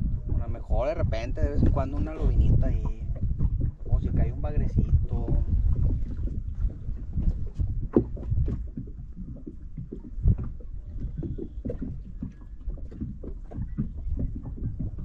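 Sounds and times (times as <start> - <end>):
waves slapping boat hull: 0.0 - 15.0.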